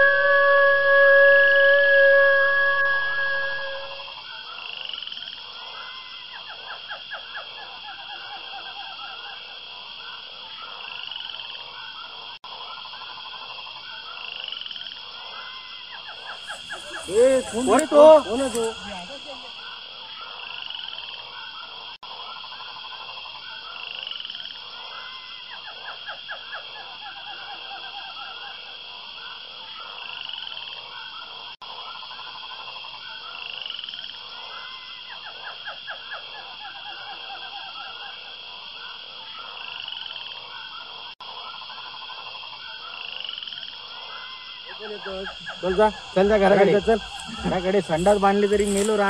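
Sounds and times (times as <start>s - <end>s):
steady high trill: 0.0s - 4.1s
frogs croaking: 3.3s - 49.0s.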